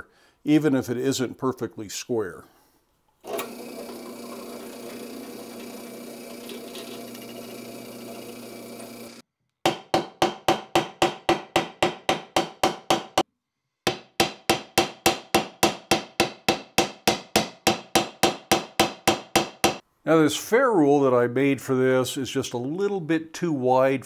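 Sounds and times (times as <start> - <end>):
drill press motor running: 3.2 - 9.2.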